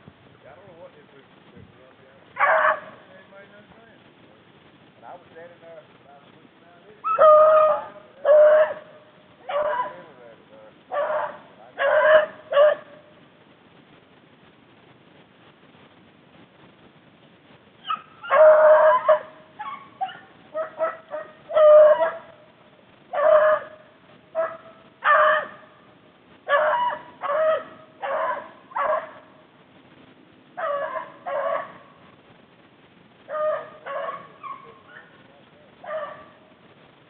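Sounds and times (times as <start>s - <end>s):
dogs yelping: 2.4s - 3.0s, 7.0s - 10.2s, 10.9s - 13.0s, 17.8s - 22.5s, 23.1s - 25.7s, 26.5s - 29.3s, 30.6s - 32.0s, 33.3s - 35.2s, 35.8s - 36.4s
dogs baying: 2.4s - 3.1s, 7.0s - 10.3s, 10.9s - 13.1s, 17.8s - 22.5s, 23.1s - 25.7s, 26.4s - 29.4s, 30.6s - 32.0s, 33.3s - 35.2s, 35.8s - 36.4s.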